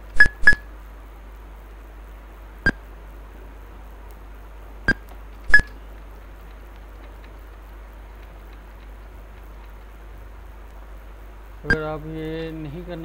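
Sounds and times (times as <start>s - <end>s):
faint steady hiss: 0.0s - 13.0s.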